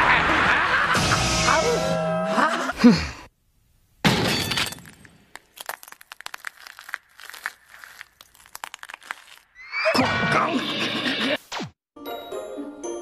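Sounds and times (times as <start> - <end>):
fine cracking and crackling clicks: 5.3 - 9.4.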